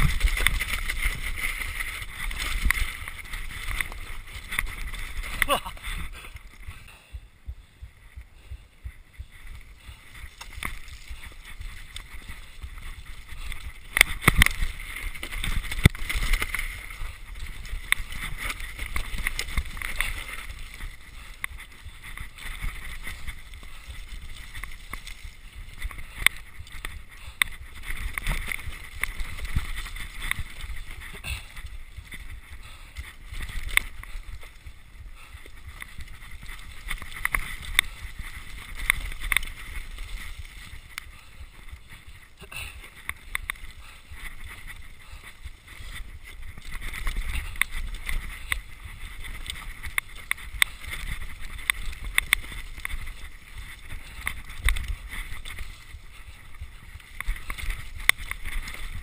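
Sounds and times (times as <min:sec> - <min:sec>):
tyres rumbling on mud: 0:00.0 - 0:06.9
mountain bike rattling: 0:00.0 - 0:59.0.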